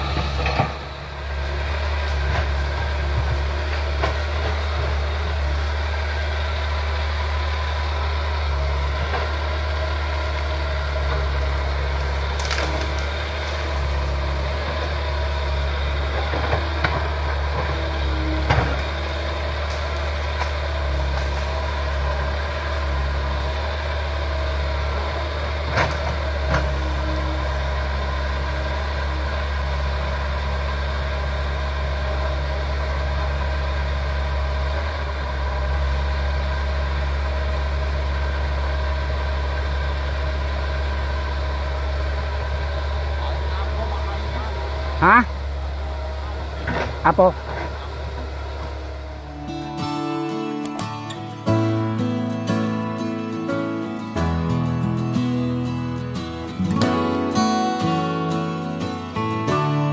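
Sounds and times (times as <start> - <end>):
excavator diesel engine running: 0.0 - 59.9
sharp knocks and cracks: 12.3 - 13.7.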